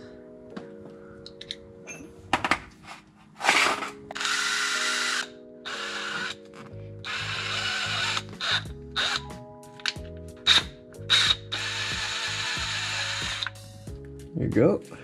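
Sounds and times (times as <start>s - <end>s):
cordless drill boring into metal: 3.4s - 6.4s, 7.0s - 9.3s, 10.5s - 13.6s.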